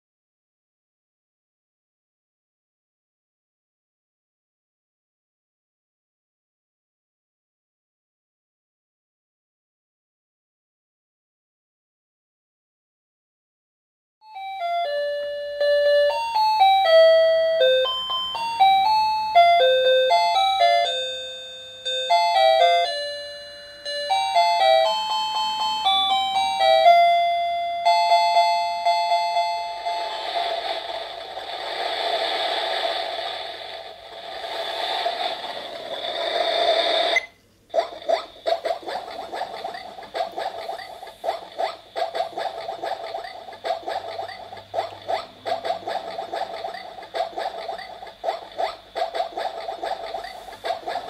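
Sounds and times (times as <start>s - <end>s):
tinny electronic chime melody: 14.2s - 30.5s
hissing with steady held tone: 29.8s - 42.0s.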